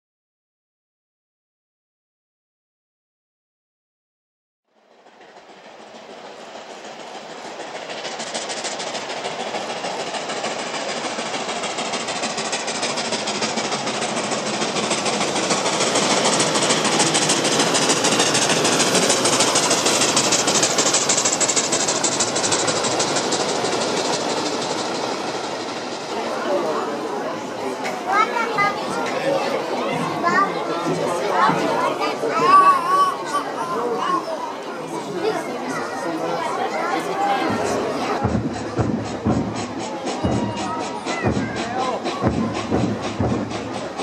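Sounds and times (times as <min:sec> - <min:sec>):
steam locomotive exhaust beats: 0:04.8 - 0:32.8, 0:37.0 - 0:44.0
carriages rolling over rails: 0:04.8 - 0:44.0.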